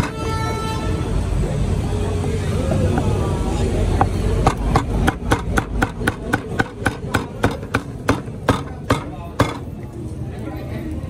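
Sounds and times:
cleaver chopping meat on block: 4.4 - 9.7.

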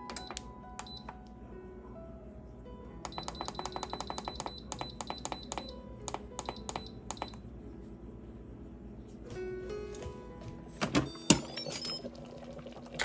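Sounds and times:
quiet background music: 0.0 - 13.0
short high beeps: 3.1 - 5.7.

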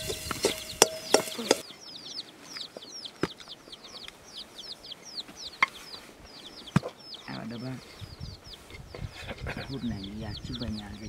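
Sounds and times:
spoon clicking on metal plate: 0.0 - 1.6
chicks peeping: 0.0 - 11.0.

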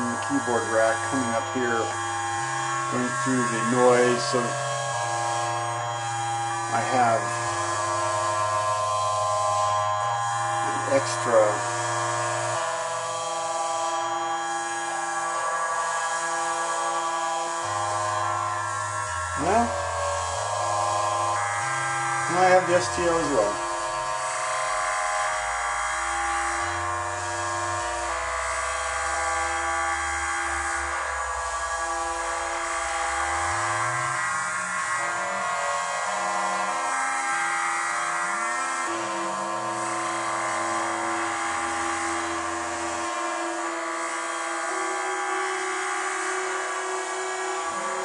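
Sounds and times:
buzzy synthesizer drone: 0.0 - 48.0
low synth bass note: 0.0 - 48.0.

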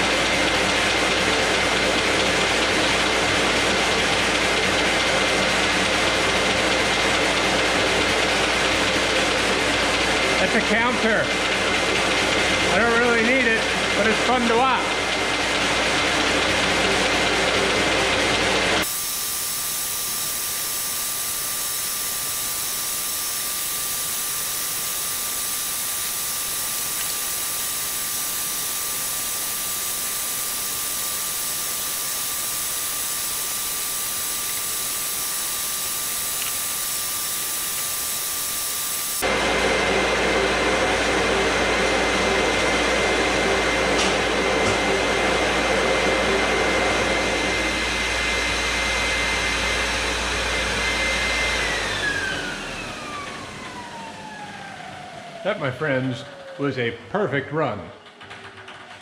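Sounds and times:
paper folder machine running: 0.0 - 54.9
low hum and ringing tones: 18.9 - 39.3.

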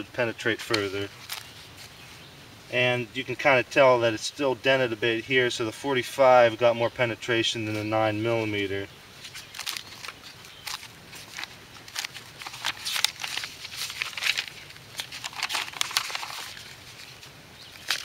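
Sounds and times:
paper pages rustling and flapping: 0.5 - 2.1, 9.2 - 18.0.

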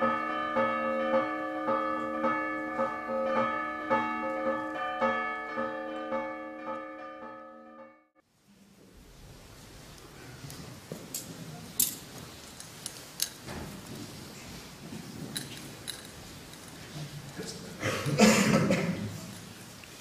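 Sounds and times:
crowd shuffling and murmuring: 8.4 - 20.0
rustling and movement: 8.8 - 17.7
light metallic clinks: 15.3 - 16.8.

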